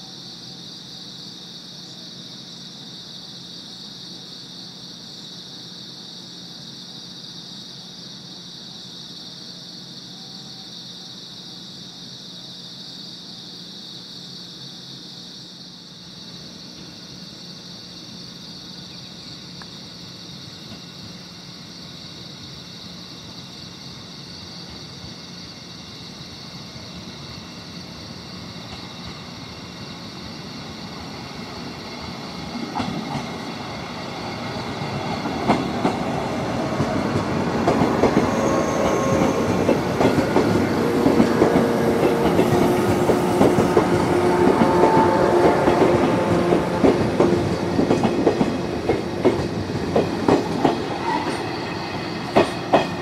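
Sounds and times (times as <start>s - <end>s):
night insects chirping: 0.0s - 53.0s
electric train running: 27.5s - 53.0s.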